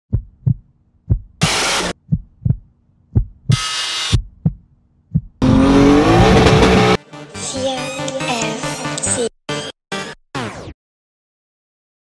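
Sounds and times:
heartbeat thumps: 0:00.1 - 0:06.9
harsh noise bursts: 0:01.4 - 0:02.0
engine revving: 0:05.4 - 0:07.0.

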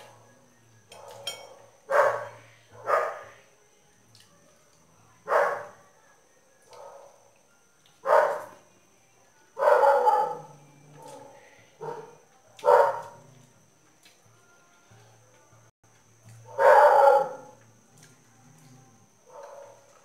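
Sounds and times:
dog barking: 0:00.9 - 0:03.4, 0:05.3 - 0:05.8, 0:06.6 - 0:07.2, 0:08.0 - 0:08.6, 0:09.6 - 0:13.4, 0:16.4 - 0:17.6, 0:19.2 - 0:20.0.

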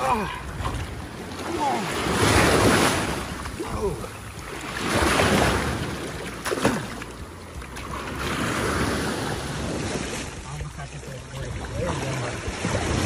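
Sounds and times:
shallow surf washing: 0:00.0 - 0:13.0
wind on microphone: 0:11.5 - 0:13.0.

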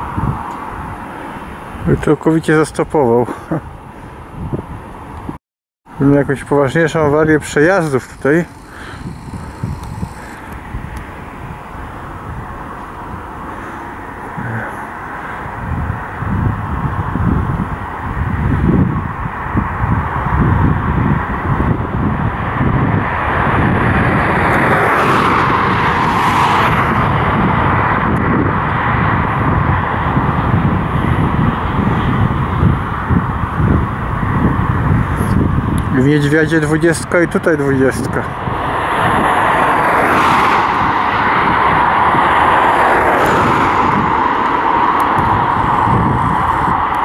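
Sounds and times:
freight train passing slowly: 0:41.7 - 0:47.0.

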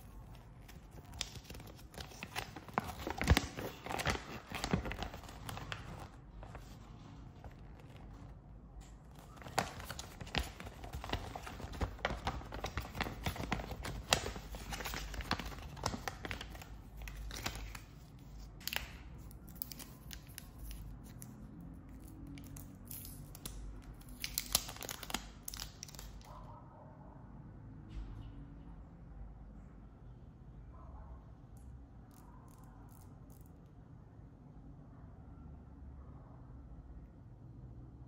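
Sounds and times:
paper crinkling and rustling: 0:00.0 - 0:21.3, 0:23.4 - 0:26.3.

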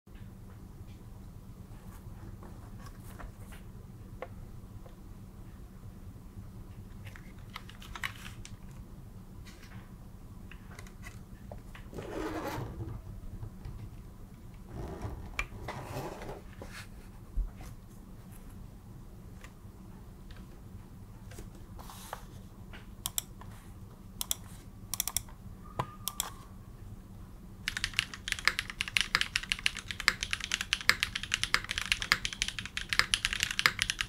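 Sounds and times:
keyboard rubbing and shuffling: 0:11.8 - 0:13.4, 0:14.6 - 0:18.5
keyboard key clicks: 0:25.0 - 0:25.3.

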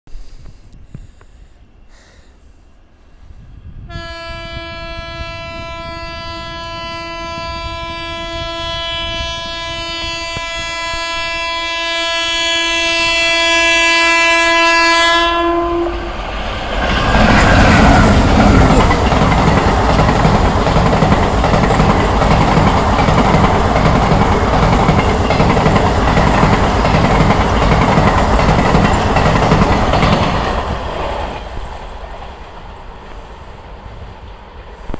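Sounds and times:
train horn: 0:03.8 - 0:16.2
train wheels clacking over rail joints: 0:16.8 - 0:33.2.

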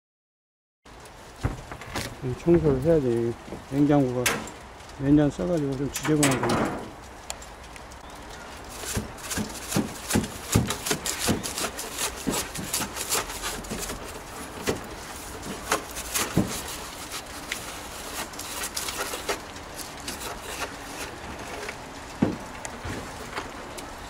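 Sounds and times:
straw broom sweeping: 0:08.7 - 0:21.2.

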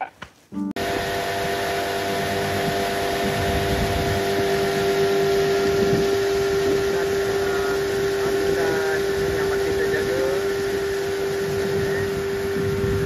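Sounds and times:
low water rush: 0:00.8 - 0:13.0
outboard motor humming: 0:00.8 - 0:13.0.

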